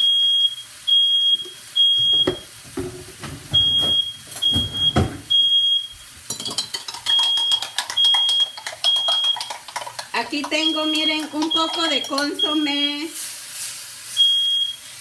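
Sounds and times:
smoke alarm beeping: 0:00.0 - 0:06.1, 0:07.1 - 0:09.5, 0:10.5 - 0:13.0, 0:14.2 - 0:14.8
sizzling in a frying pan: 0:00.0 - 0:15.0.

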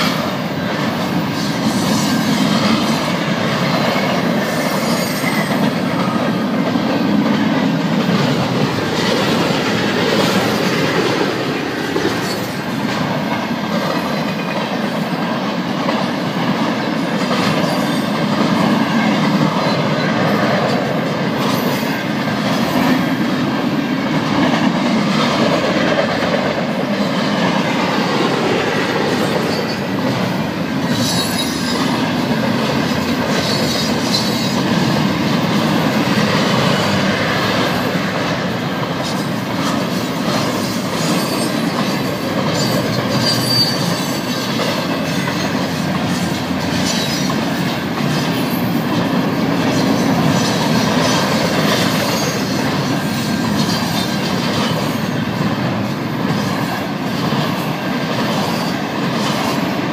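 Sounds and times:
freight train wheels rumbling: 0:00.0 - 0:59.9
high-pitched wheel squeaks: 0:30.9 - 0:32.0, 0:42.6 - 0:47.4.

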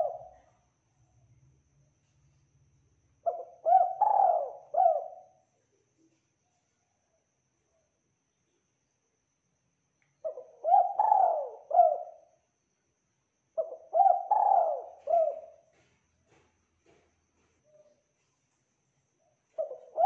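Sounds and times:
dove cooing: 0:00.0 - 0:00.5, 0:03.2 - 0:05.4, 0:10.2 - 0:12.3, 0:13.6 - 0:15.7, 0:19.5 - 0:20.0.

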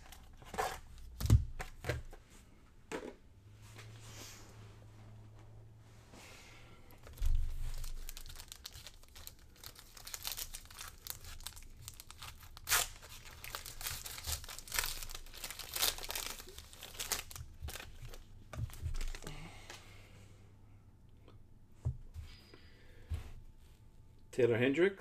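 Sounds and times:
wrapper tearing and crinkling: 0:07.2 - 0:19.3.

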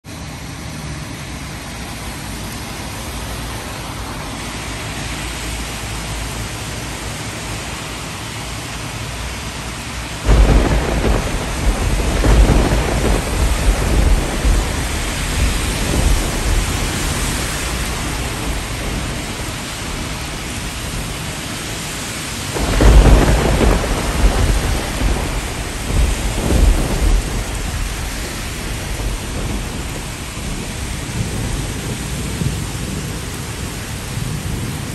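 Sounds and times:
heavy rain: 0:00.0 - 0:34.9
thunder claps rumbling: 0:10.1 - 0:34.9.

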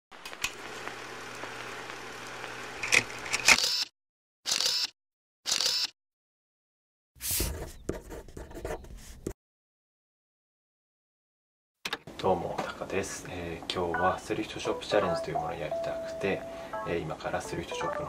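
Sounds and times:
film camera clicks: 0:02.8 - 0:03.9, 0:05.5 - 0:05.9.

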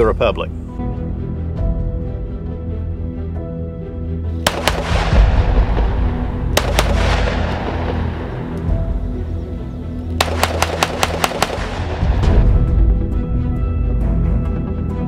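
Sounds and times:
background music: 0:00.0 - 0:15.0
pistol gunshots: 0:04.4 - 0:08.6, 0:10.2 - 0:12.4.

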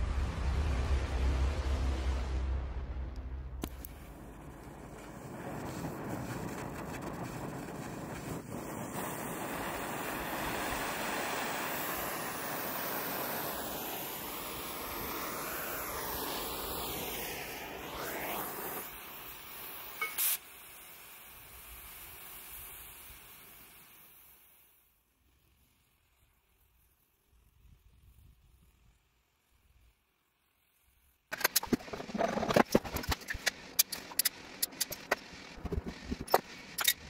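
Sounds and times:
gas torch flame hissing: 0:03.6 - 0:24.9
sharp click: 0:31.3 - 0:37.0.

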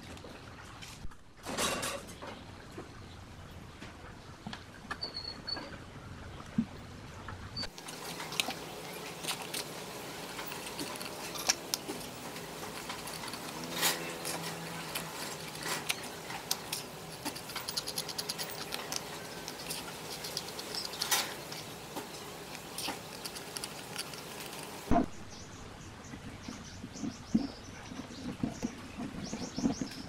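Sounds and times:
metal spatula scraping can: 0:07.7 - 0:24.9.

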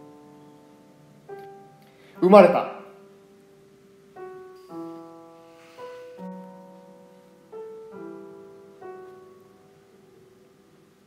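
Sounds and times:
slow soft piano: 0:00.0 - 0:11.0.

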